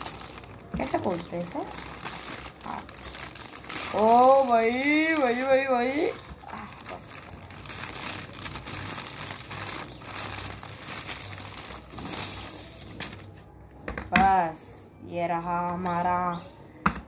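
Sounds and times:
plastic bag crinkling: 0.0 - 13.4.

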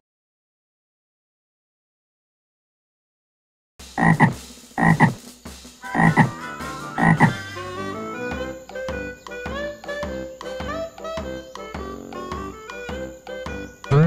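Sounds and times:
music: 3.8 - 14.0
frog croaking: 4.0 - 5.2, 5.9 - 6.4, 7.0 - 7.4.

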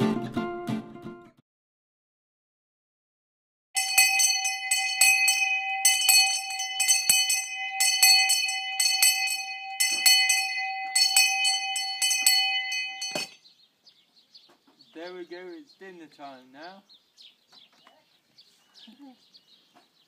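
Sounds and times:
hand bell clanging: 3.8 - 13.4.

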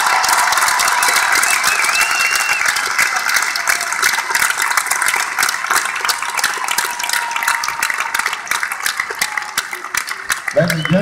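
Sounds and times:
large audience applauding: 0.0 - 11.0
person whistling: 1.5 - 2.6.

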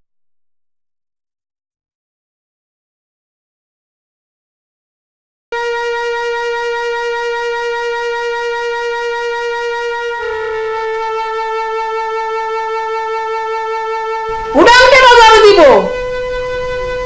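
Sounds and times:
long held wind instrument note: 5.6 - 17.0.

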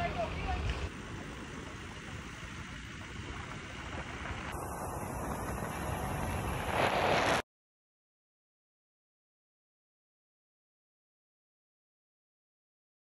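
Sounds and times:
road noise rumble: 0.0 - 7.4
wind on microphone: 0.4 - 7.4.

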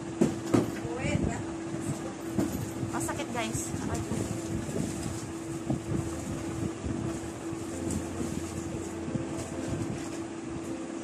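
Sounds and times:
mechanical hum: 0.0 - 11.0.

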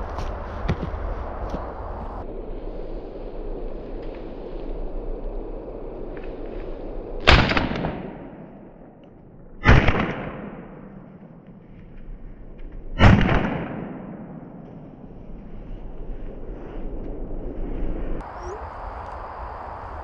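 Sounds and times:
shotgun shots with echo: 9.6 - 10.9, 13.0 - 14.6.

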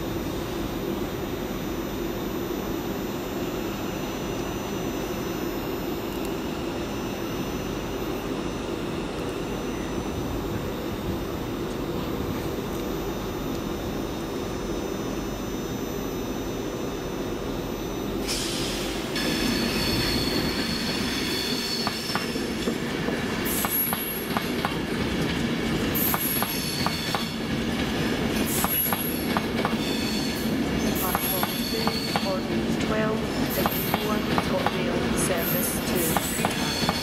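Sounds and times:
train low rumble: 0.0 - 37.0
train wheels squealing: 18.2 - 22.4, 26.0 - 27.4, 28.4 - 32.4, 35.4 - 37.0.

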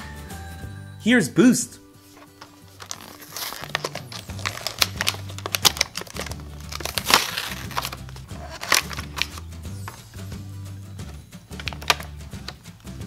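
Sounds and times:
low background music: 0.0 - 13.0
plastic blister packaging crackling: 2.1 - 10.2, 11.5 - 13.0.

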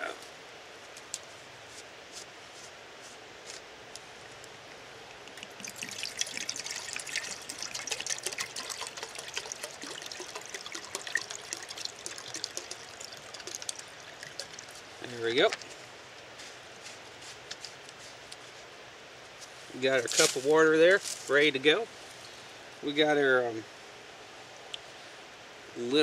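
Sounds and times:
water pouring into metal cup: 5.3 - 15.6.

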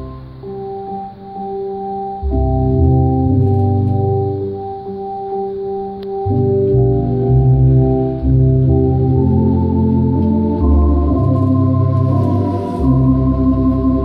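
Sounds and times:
electronic organ playing a hymn: 0.0 - 14.0.

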